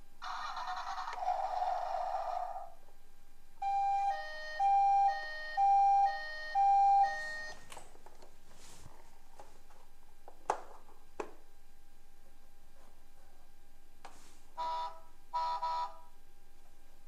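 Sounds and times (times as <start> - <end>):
buzzy toy siren blare: 3.6 - 7.6
two-tone hi-lo siren: 3.6 - 7.6.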